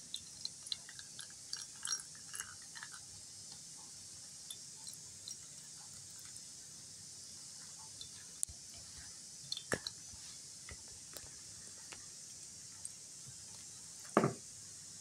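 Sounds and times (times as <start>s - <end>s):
spoon squishing soaked flowers: 0.0s - 3.0s, 4.5s - 6.4s, 7.6s - 11.3s.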